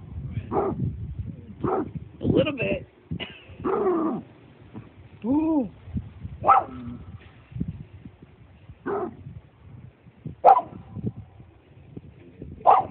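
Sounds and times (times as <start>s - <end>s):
dog barking: 0.5s - 0.8s, 1.6s - 1.9s, 3.6s - 4.2s, 6.4s - 6.9s, 8.8s - 9.2s, 10.4s - 10.8s, 12.6s - 12.9s.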